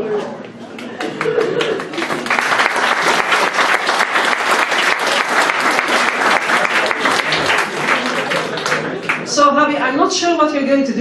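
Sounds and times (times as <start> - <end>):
people applauding: 0.7 - 9.4.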